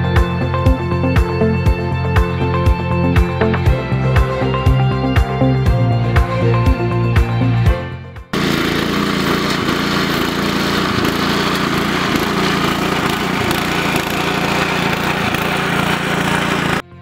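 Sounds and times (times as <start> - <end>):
engine drone: 8.2 - 17.0
blades raking through turf: 8.4 - 16.8.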